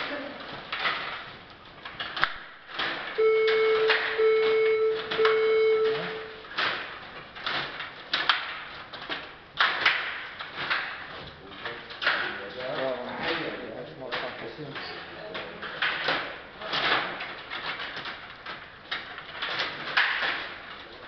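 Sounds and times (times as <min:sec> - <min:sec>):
electronic beeps: 0:03.2 - 0:06.4
table hockey plastic clacks: 0:06.5 - 0:13.4, 0:14.1 - 0:20.8.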